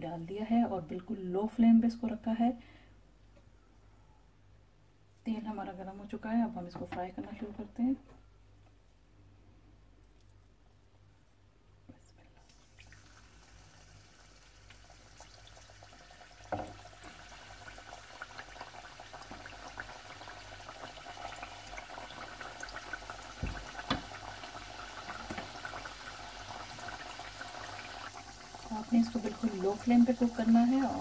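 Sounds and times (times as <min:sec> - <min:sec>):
oil fizzing and crackling: 0:12.4 - 0:31.0.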